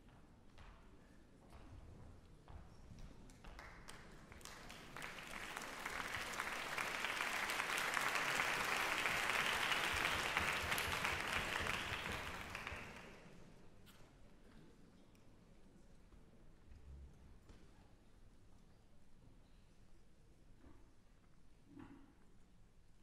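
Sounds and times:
audience applause: 0:04.4 - 0:13.2.

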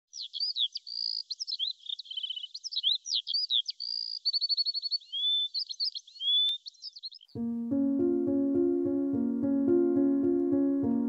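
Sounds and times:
songbirds singing: 0:00.0 - 0:07.4.

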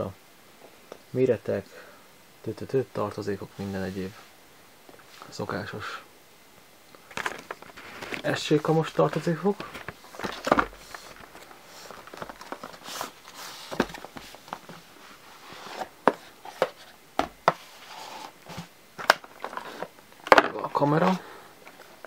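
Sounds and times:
cardboard box rubbing and sliding: 0:09.6 - 0:18.7.

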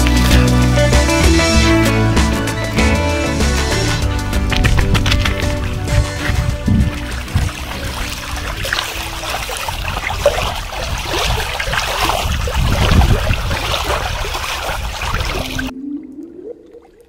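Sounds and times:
low rumble: 0:01.3 - 0:08.8
lake water lapping and splashing: 0:02.5 - 0:17.0.

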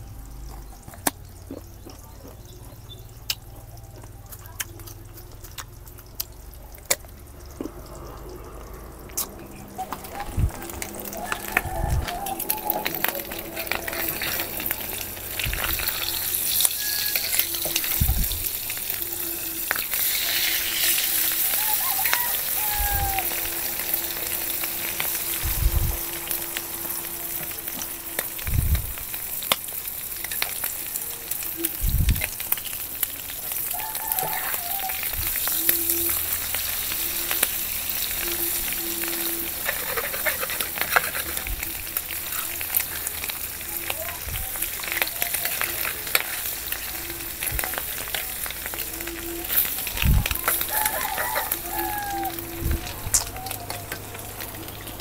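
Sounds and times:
eggs sizzling in hot oil: 0:00.0 - 0:55.0
metal spatula scraping pan: 0:12.8 - 0:18.0, 0:38.5 - 0:42.4.

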